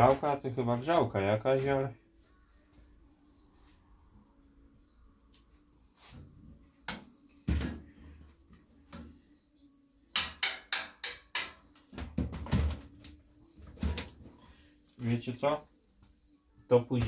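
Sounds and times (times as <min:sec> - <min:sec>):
sheet metal knocking on workbench: 0:10.2 - 0:12.8.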